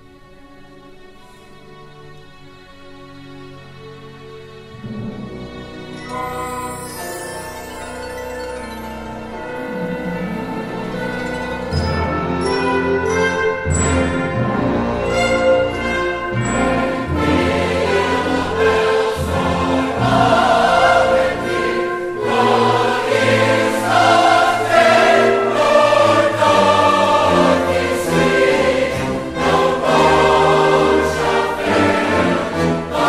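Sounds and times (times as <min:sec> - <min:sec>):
orchestra playing: 0:00.0 - 0:33.0
choir singing loud: 0:14.5 - 0:33.0.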